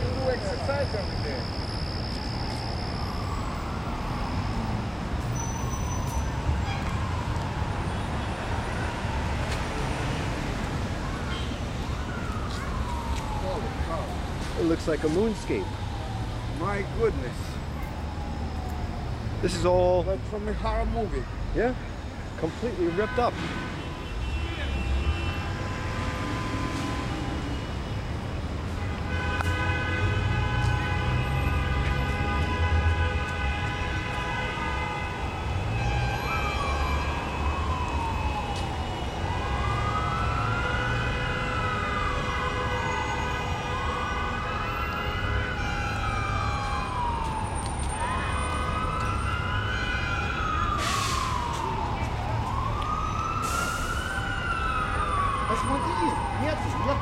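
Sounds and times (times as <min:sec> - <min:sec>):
emergency vehicle siren wailing: 0:00.0 - 0:23.2, 0:23.8 - 0:57.0.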